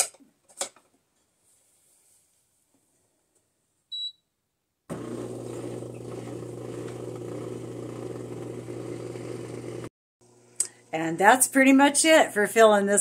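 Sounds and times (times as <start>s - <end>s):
short electronic beep: 3.9s - 4.2s
dishwasher humming and rushing: 4.9s - 9.9s.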